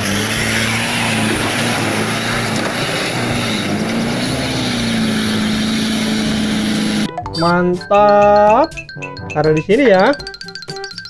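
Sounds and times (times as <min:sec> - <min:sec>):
mud and water splashing: 0:00.0 - 0:07.1
truck engine running under load: 0:00.0 - 0:07.1.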